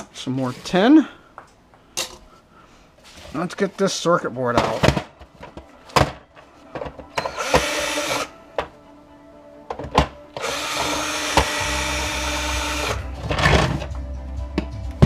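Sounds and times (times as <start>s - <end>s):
cordless drill running: 7.2s - 8.3s, 10.4s - 13.1s.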